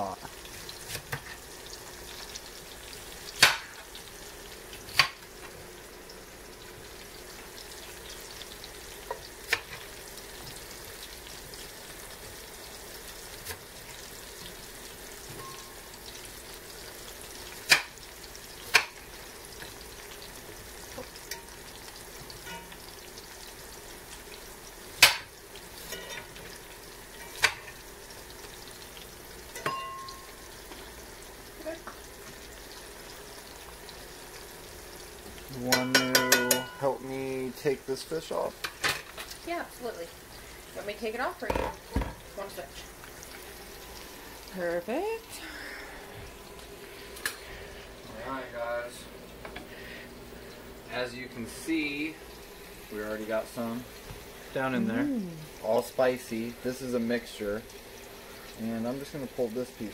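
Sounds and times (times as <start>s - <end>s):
deep-frying sizzle: 0.0s - 59.9s
fork clinking against pan: 35.7s - 36.9s.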